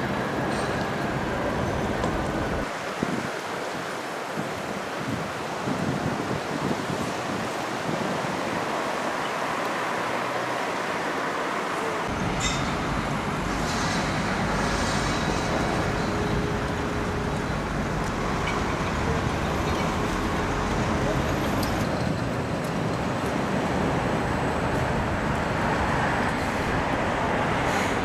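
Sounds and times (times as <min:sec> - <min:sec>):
road traffic rumble: 0:00.0 - 0:03.0, 0:03.6 - 0:28.0
steady hiss: 0:12.1 - 0:18.4.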